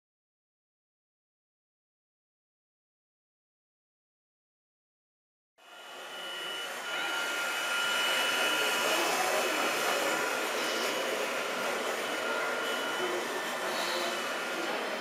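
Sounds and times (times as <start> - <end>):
electric motor whine: 5.6 - 15.0.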